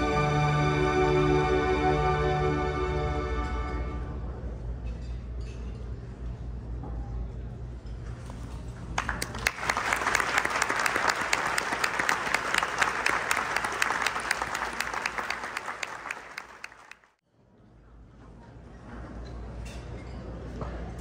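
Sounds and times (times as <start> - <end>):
audience applauding: 9.0 - 17.2.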